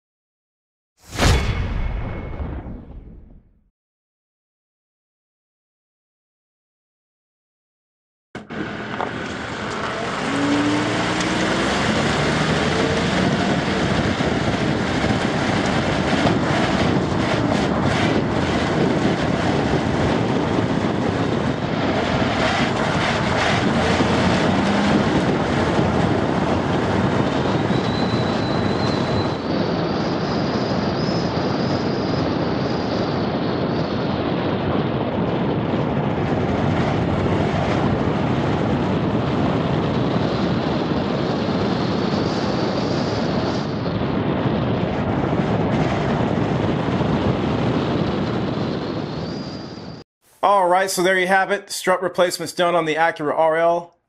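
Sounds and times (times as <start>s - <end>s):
brief rising tone: 8.4s - 13.7s, 23.5s - 25.8s
road and wind noise: 8.4s - 51.4s.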